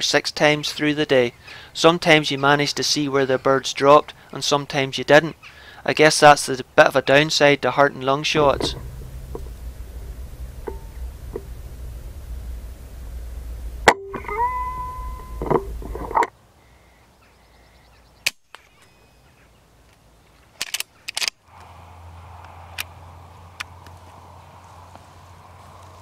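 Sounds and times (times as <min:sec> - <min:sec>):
ringing tone: 0:08.4 - 0:12.6, 0:13.8 - 0:15.9
rifle handling clicks: 0:20.6 - 0:21.4.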